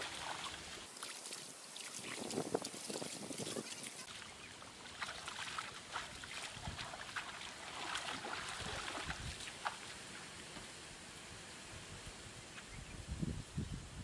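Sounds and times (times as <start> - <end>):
splashing in shallow muddy water: 0.0 - 10.6.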